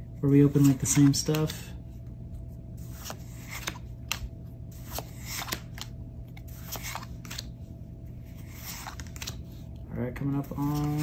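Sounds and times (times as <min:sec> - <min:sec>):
cards swishing and ticking: 0:00.4 - 0:01.6, 0:02.8 - 0:07.6, 0:08.2 - 0:11.0.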